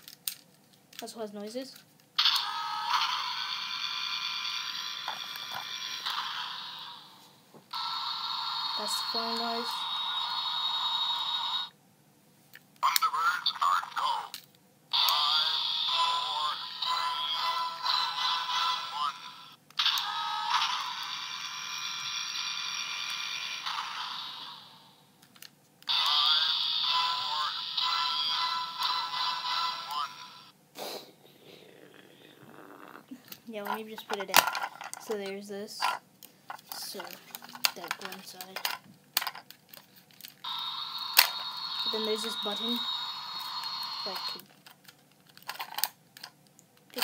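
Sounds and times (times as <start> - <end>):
toy electronic high-pitched hum: 2.2 - 11.7, 14.9 - 25.0, 25.9 - 30.5, 40.4 - 44.4.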